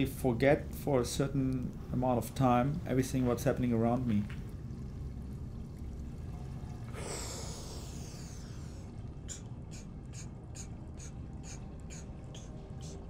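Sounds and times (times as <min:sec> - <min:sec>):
fast breathing: 0:07.0 - 0:13.0.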